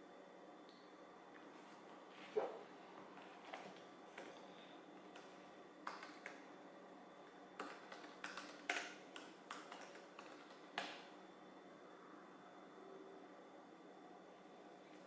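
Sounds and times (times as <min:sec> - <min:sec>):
laptop keyboard typing: 0:05.0 - 0:06.5, 0:07.6 - 0:11.1.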